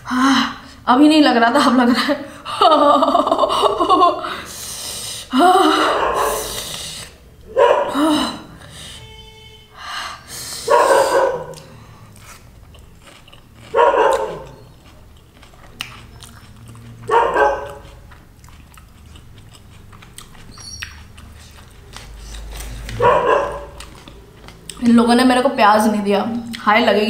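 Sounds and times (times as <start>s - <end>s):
soft chewing and mouth clicks: 11.4s - 24.9s.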